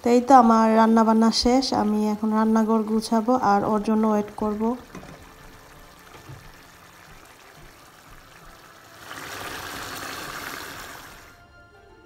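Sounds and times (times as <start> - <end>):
curry bubbling in a pan: 3.8 - 11.4.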